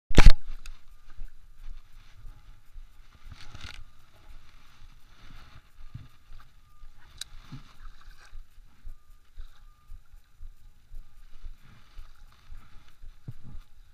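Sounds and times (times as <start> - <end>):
sharp click: 0.1 - 1.3, 3.2 - 4.5
fishing reel clicks and thumps: 0.2 - 13.9.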